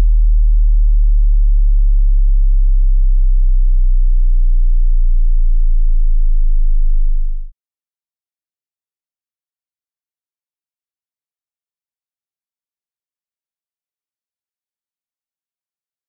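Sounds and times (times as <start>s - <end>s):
low sine test tone: 0.0s - 7.5s.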